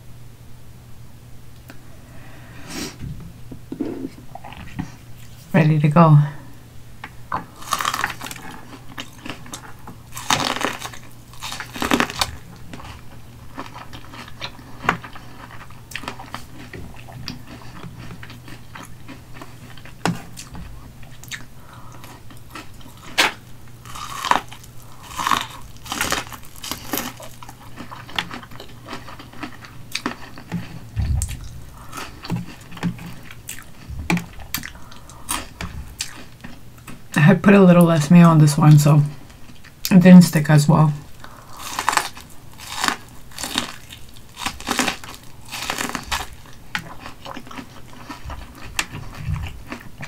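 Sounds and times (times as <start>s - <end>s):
crunchy chewing: 7.0s - 37.2s, 41.1s - 50.0s.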